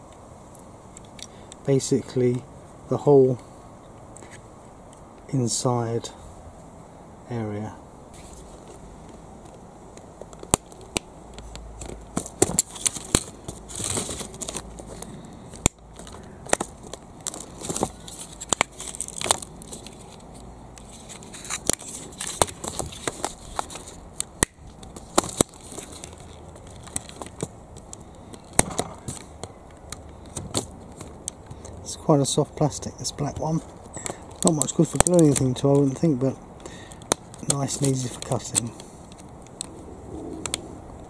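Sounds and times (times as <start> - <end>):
plastic clicks and cracks: 9.0 - 31.8, 33.3 - 35.9, 36.6 - 39.7.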